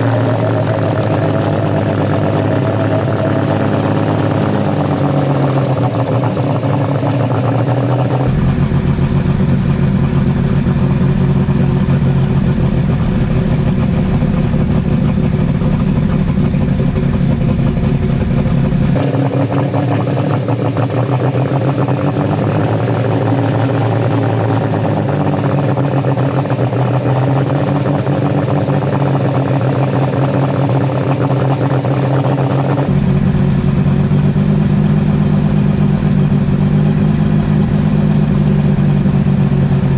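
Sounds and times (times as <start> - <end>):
deep low rumble: 0.0 - 19.0, 32.8 - 39.9
diesel engine idling: 0.0 - 19.0, 31.6 - 39.9.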